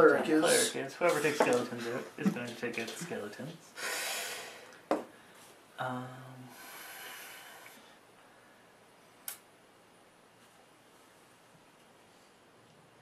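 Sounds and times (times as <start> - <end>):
breathy exhale: 3.8 - 5.3, 6.5 - 8.6.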